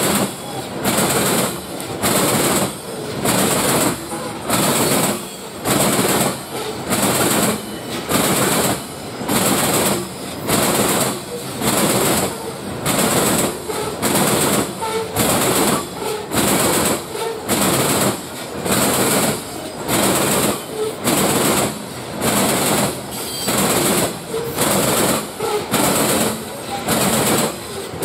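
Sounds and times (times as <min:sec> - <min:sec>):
train wheels clacking on rails: 0:00.0 - 0:28.0.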